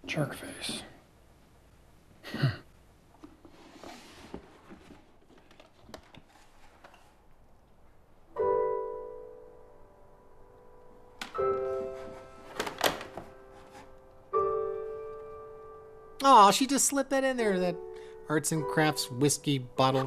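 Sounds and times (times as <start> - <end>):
rustling in cardboard box: 3.4 - 7.2
piano chord: 8.3 - 20.0.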